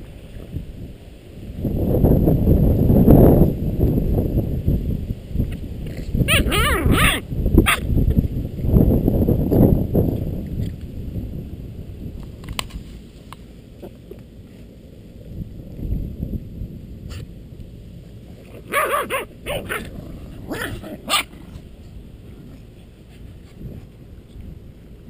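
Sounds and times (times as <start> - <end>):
wind rumble on microphone: 0.0 - 25.0
puppies yipping and barking: 6.3 - 7.8, 18.6 - 21.4.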